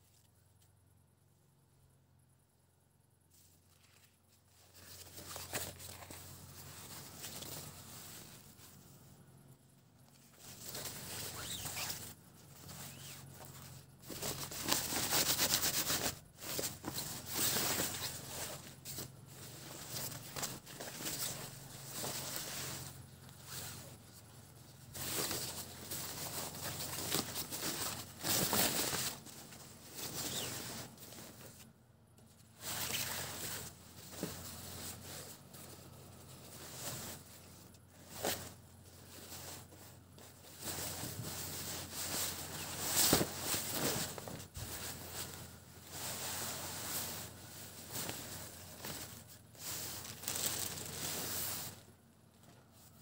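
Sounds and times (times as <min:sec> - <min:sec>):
cloth rustling and swishing: 0:10.0 - 0:31.7, 0:32.4 - 0:51.9.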